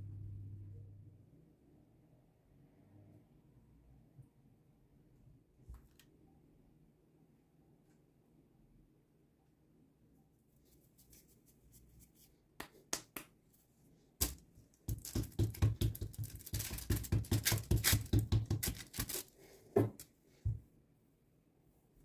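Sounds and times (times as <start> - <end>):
hands rubbing dough on paper: 10.5 - 20.0.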